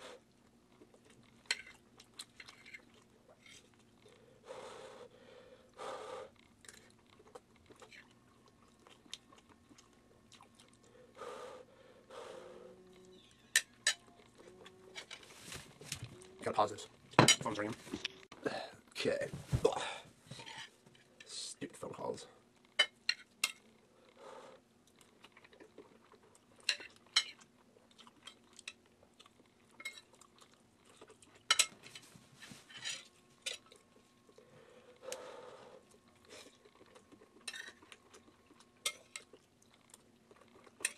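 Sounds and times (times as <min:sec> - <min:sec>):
person chewing: 0:00.1 - 0:04.3, 0:05.7 - 0:11.2, 0:24.8 - 0:31.6, 0:33.4 - 0:40.9.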